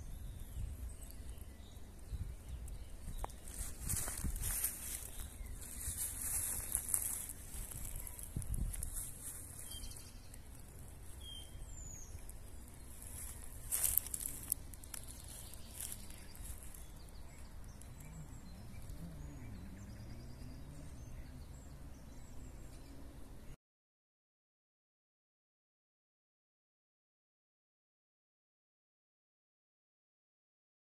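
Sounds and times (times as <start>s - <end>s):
bird chirp: 0.0s - 23.6s
sharp crackles: 2.6s - 11.0s, 11.7s - 18.2s.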